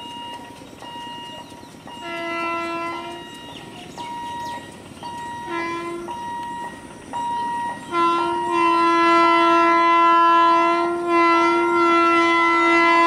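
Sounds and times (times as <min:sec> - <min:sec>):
electronic beep: 0:00.0 - 0:02.0, 0:03.2 - 0:08.5
locomotive horn: 0:00.0 - 0:13.0.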